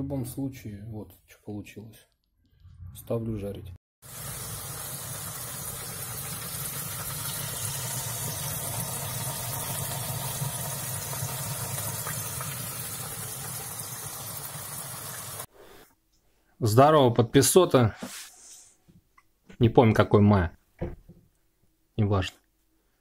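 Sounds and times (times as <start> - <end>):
chicken frying in hot oil: 4.0 - 15.5.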